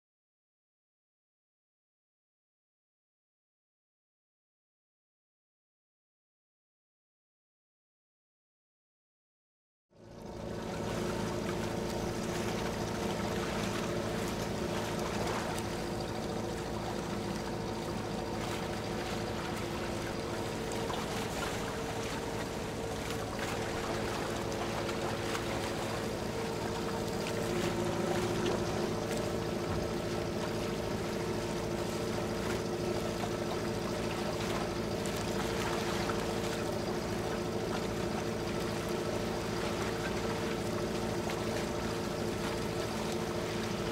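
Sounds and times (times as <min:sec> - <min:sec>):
motorboat engine running: 0:09.9 - 0:43.9
wind: 0:10.0 - 0:43.9
water rushing: 0:10.5 - 0:43.9.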